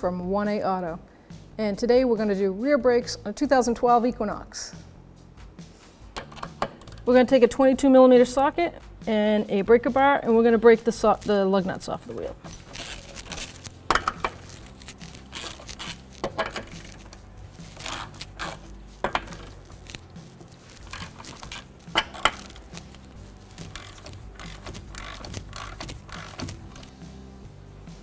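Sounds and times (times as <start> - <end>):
socket scraping: 6.1 - 7.1, 12.1 - 27.1
lug nuts cracking loose: 6.2 - 7.1, 12.5 - 27.0.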